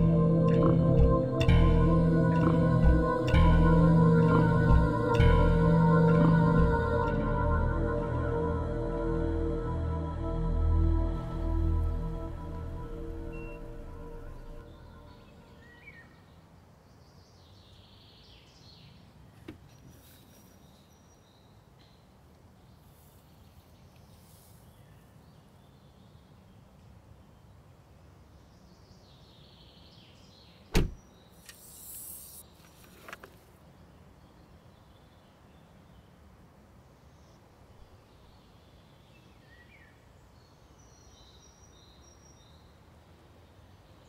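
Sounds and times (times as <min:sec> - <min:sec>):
faint rural ambience: 0:00.0 - 0:44.0
car door slamming: 0:30.7 - 0:31.0
brief rustle: 0:31.4 - 0:33.6.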